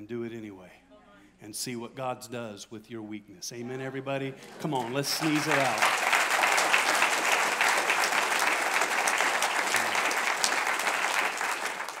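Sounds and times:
congregation clapping: 0:04.4 - 0:12.0.

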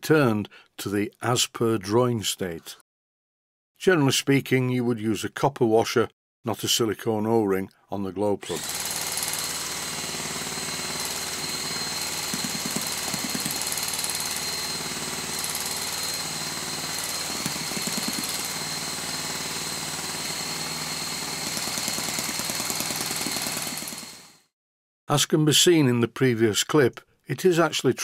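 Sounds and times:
starter motor rattling buzz: 0:08.6 - 0:24.2.

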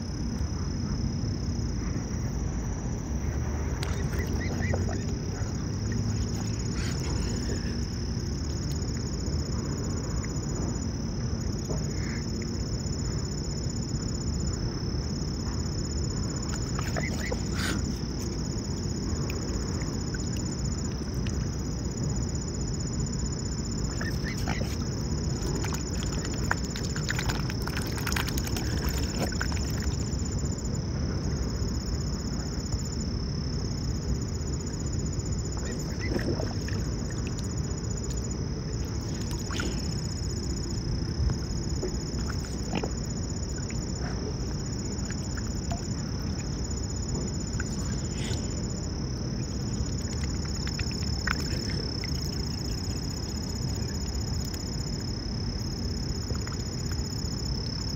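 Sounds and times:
low background rumble: 0:00.0 - 0:57.9
small water splashes: 0:03.8 - 0:07.8, 0:16.4 - 0:21.5, 0:23.8 - 0:30.4, 0:35.5 - 0:40.4, 0:41.4 - 0:55.1, 0:55.8 - 0:57.8
swans sipping clicks: 0:16.5 - 0:18.4, 0:23.9 - 0:30.1, 0:49.4 - 0:53.4.

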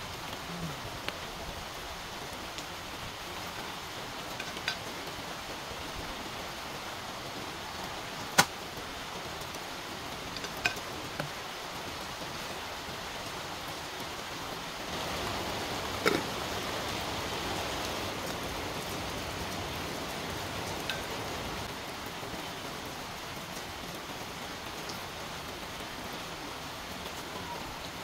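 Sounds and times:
pot of water boiling: 0:02.2 - 0:23.7.

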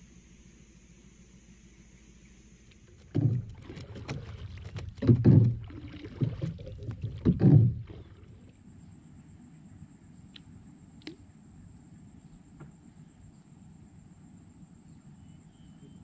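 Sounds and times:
knocks on a boat hull: 0:03.1 - 0:03.7, 0:04.8 - 0:05.7, 0:07.2 - 0:08.0.

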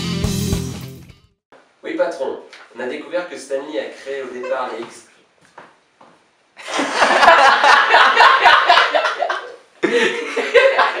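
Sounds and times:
people laughing loudly: 0:04.3 - 0:05.0, 0:06.6 - 0:11.0.

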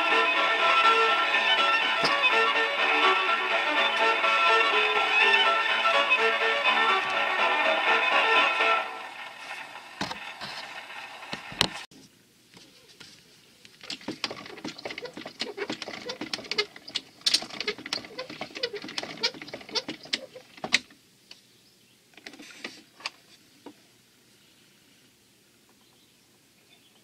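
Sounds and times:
gramophone handling clicks and rattles: 0:13.8 - 0:20.9.

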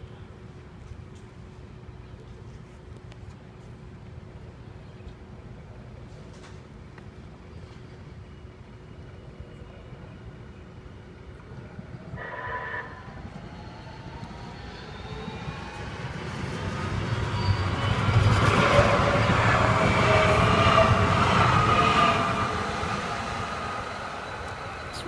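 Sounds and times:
train wheels rumbling on rails: 0:12.0 - 0:25.0
train horn: 0:12.2 - 0:13.1.

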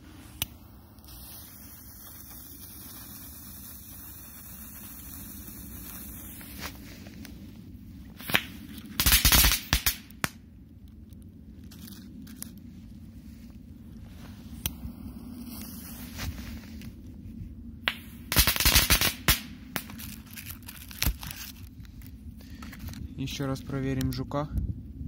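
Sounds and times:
firecrackers snapping: 0:08.2 - 0:10.4, 0:17.9 - 0:22.1.

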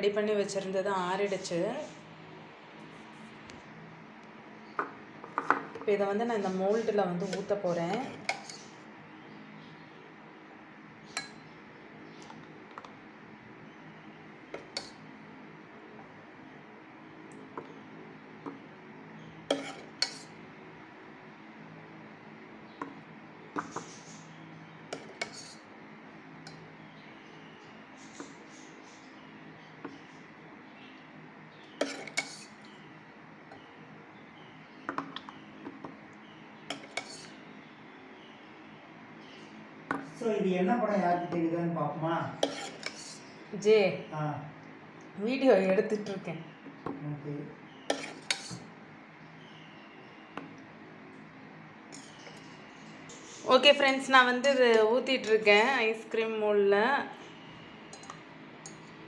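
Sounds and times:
faint steady background noise: 0:00.0 - 0:59.0
ladle clinking against pot rim: 0:31.8 - 0:32.5, 0:57.9 - 0:58.9.

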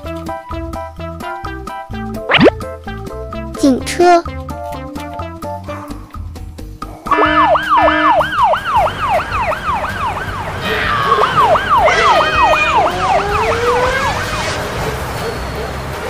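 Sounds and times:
second siren: 0:07.1 - 0:14.6
police siren yelping: 0:07.1 - 0:15.0.

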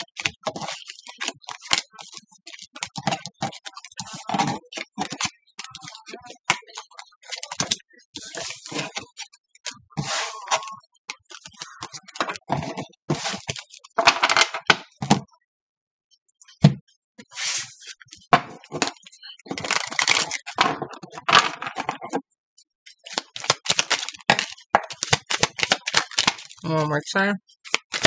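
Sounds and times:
cards being shuffled: 0:00.0 - 0:09.3, 0:23.1 - 0:26.6, 0:27.6 - 0:28.0.

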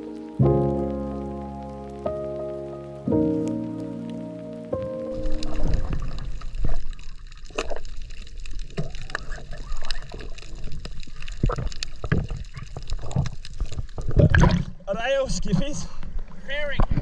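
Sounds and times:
underwater rush of water: 0:04.9 - 0:14.9
sharp underwater clicks and crackles: 0:05.1 - 0:14.9.

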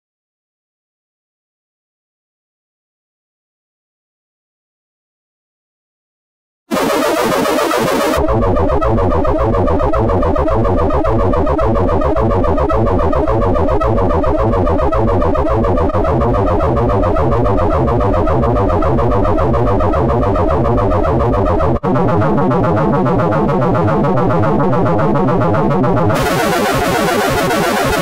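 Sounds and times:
harsh dense electronic tone: 0:06.7 - 0:28.0.

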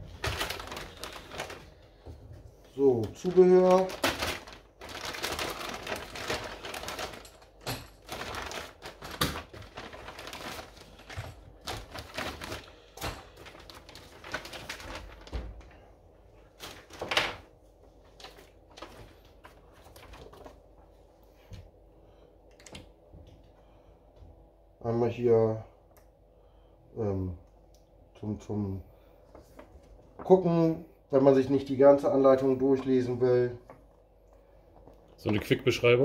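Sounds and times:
plastic bag crinkling: 0:00.0 - 0:02.0, 0:02.7 - 0:15.8, 0:16.4 - 0:20.7
paper leaflets rustling: 0:00.0 - 0:15.8, 0:16.5 - 0:20.9.

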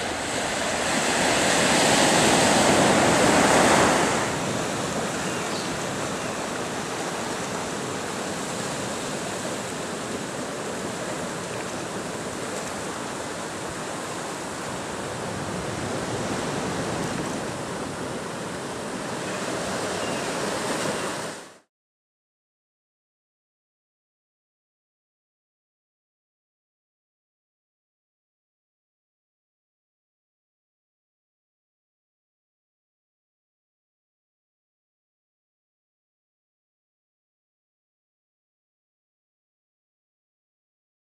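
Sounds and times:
ocean surf washing over rocks: 0:00.0 - 0:21.6.

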